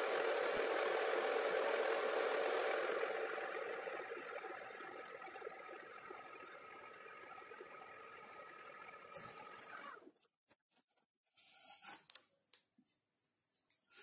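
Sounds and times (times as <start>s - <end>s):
lathe running with thin whine: 0.0s - 10.1s.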